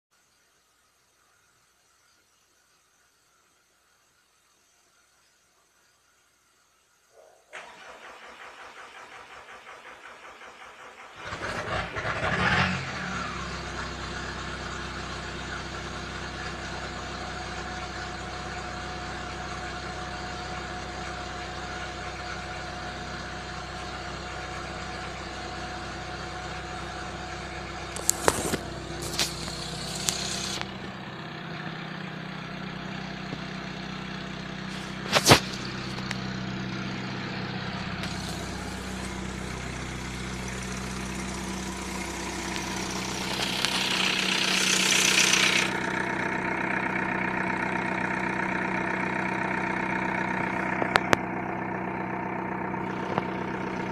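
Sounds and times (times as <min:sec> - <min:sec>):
diesel engine idling: 0:07.6 - 0:53.9
starter motor cranking: 0:26.5 - 0:30.9, 0:38.0 - 0:46.0
engine knocks: 0:34.6 - 0:46.5, 0:47.5 - 0:53.9.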